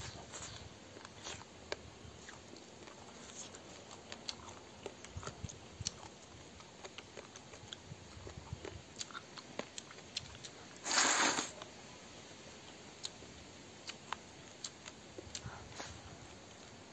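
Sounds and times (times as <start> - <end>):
chewing with wet mouth clicks: 0.0 - 10.8, 12.9 - 13.2, 13.8 - 16.8
slurping noodles: 10.8 - 11.6.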